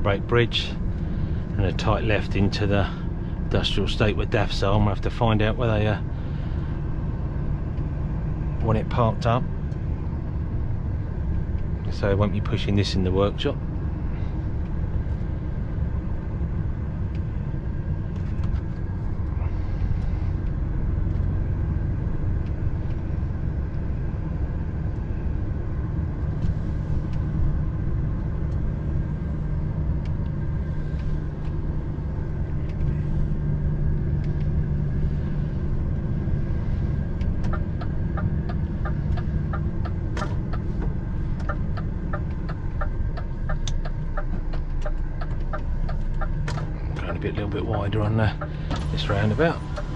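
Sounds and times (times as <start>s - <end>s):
diesel truck engine running: 0.0s - 49.9s.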